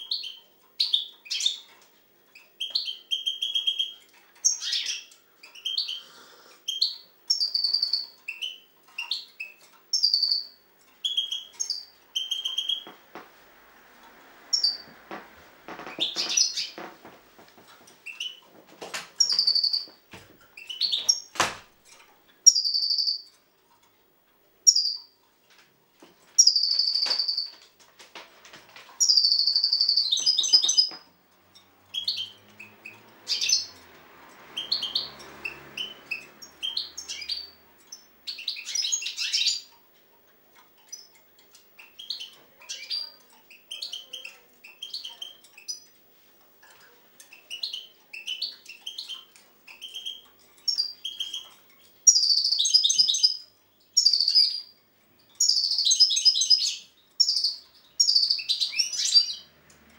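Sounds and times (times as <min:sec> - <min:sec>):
goldfinch singing: 0:00.0 - 0:01.7, 0:02.3 - 0:06.0, 0:06.7 - 0:13.3, 0:14.4 - 0:17.2, 0:18.0 - 0:18.4, 0:19.2 - 0:20.0, 0:20.6 - 0:21.4, 0:22.4 - 0:23.3, 0:26.4 - 0:27.6, 0:29.0 - 0:33.9, 0:34.5 - 0:39.7, 0:40.8 - 0:45.9, 0:47.2 - 0:59.6.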